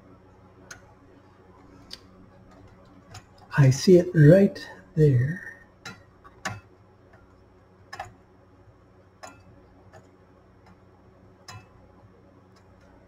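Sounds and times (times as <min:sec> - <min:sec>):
faint steady hum: 0:00.0 - 0:13.0.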